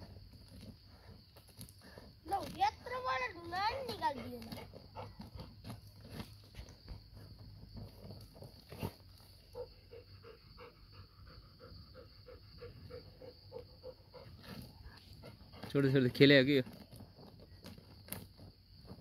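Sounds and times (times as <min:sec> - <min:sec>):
dog paws digging in stony dirt: 0:00.0 - 0:09.7
dog panting rapidly: 0:03.6 - 0:05.6, 0:09.6 - 0:16.0.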